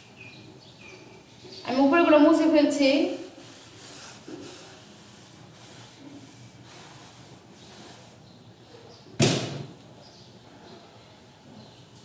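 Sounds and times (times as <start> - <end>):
duster wiping blackboard: 2.8 - 8.4
loud thud: 9.2 - 9.8.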